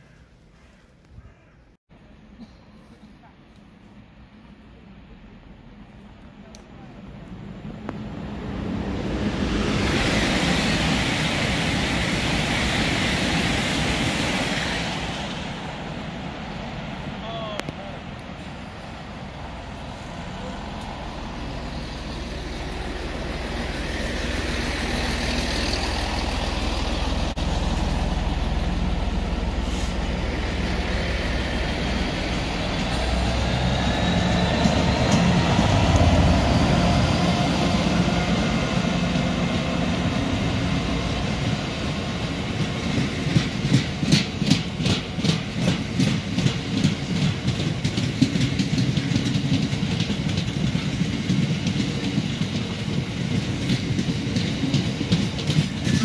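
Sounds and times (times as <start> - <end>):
diesel locomotive engine rumble: 0.0 - 56.0
train wheels clickety-clack: 20.4 - 56.0.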